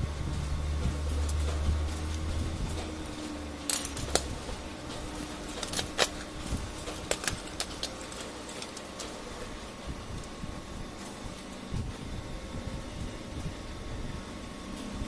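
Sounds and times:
low hum: 0.0 - 15.0
plastic and metal parts clicking: 5.5 - 9.2.

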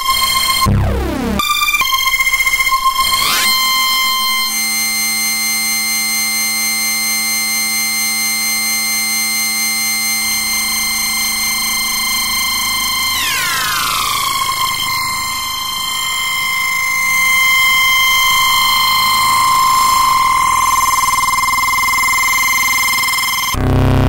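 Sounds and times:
sustained synthesizer note: 0.4 - 2.0, 10.7 - 24.0.

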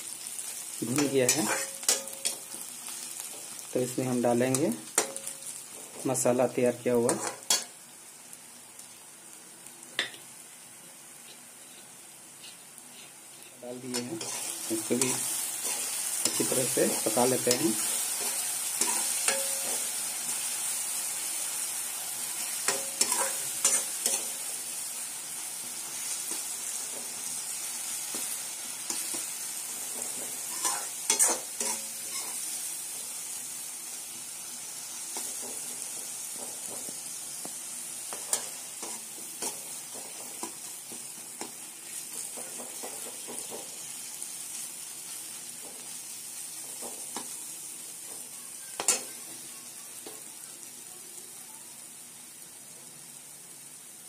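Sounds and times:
onions sizzling in hot oil: 0.0 - 54.0
metal spoon scraping a pan: 1.0 - 2.6, 7.1 - 7.7, 11.6 - 20.0, 22.4 - 24.5, 28.1 - 32.6.

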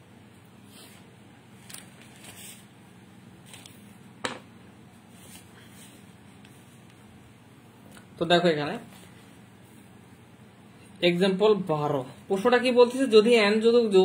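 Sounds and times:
steady low hum: 0.0 - 14.0
notebook and pens handled: 1.6 - 2.7, 3.4 - 3.8.

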